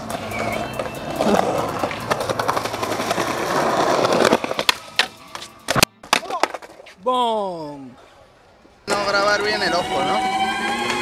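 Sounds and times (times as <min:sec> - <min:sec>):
skateboard clacking on concrete ledge: 0:00.0 - 0:06.8
skateboard wheels rolling on concrete: 0:00.0 - 0:07.1, 0:08.0 - 0:11.0.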